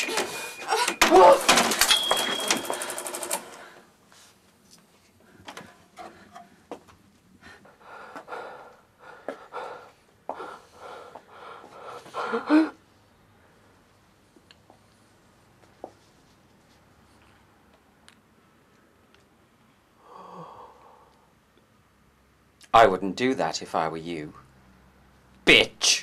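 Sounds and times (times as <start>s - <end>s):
loud clattering rattle: 0.0s - 3.4s.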